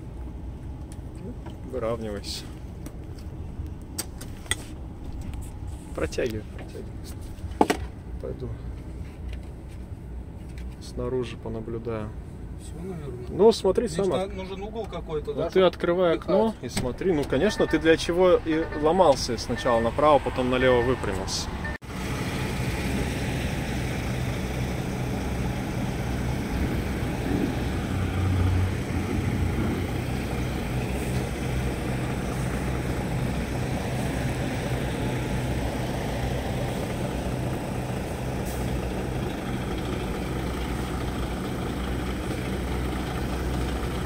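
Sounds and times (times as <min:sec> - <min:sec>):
diesel truck engine idling: 0:15.4 - 0:44.0.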